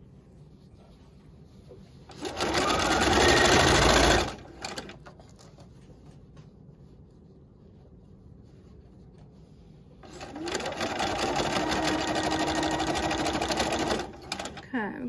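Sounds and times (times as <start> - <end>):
sewing machine stitching: 2.1 - 5.0, 10.0 - 14.7.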